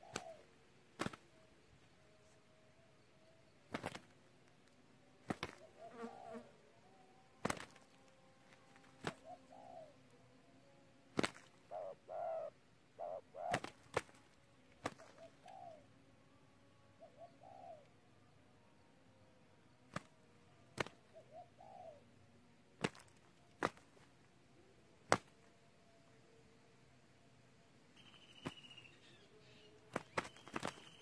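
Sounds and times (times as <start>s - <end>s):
dove low coos: 0.0s - 0.6s, 5.4s - 7.6s, 8.5s - 10.3s, 11.3s - 14.2s, 14.8s - 16.0s, 16.9s - 18.0s, 21.0s - 22.2s
dove wing slaps: 0.0s - 1.4s, 3.7s - 5.8s, 7.4s - 9.4s, 11.1s - 11.8s, 13.4s - 15.7s, 19.9s - 20.1s, 20.7s - 21.1s, 22.8s - 24.1s, 25.0s - 25.4s, 28.3s - 28.8s, 29.8s - 31.0s.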